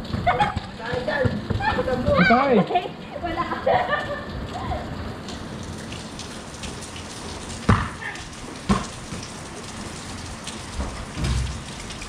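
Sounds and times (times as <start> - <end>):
rain on concrete: 0.0 - 12.0
basketball knocking on hard surfaces: 0.1 - 1.8, 7.7 - 8.0, 8.7 - 9.2.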